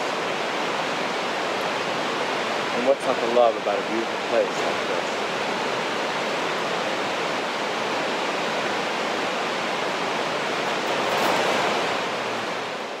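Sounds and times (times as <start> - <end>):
stream rushing over rocks: 0.0 - 13.0.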